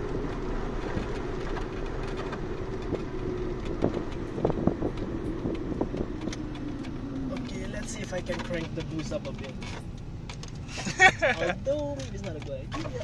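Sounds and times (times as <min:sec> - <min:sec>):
car engine drone: 0:00.0 - 0:13.0
road noise: 0:00.0 - 0:13.0.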